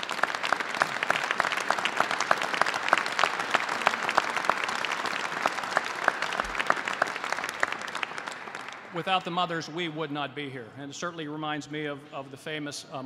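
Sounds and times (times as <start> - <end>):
crowd applauding: 0.0 - 9.6.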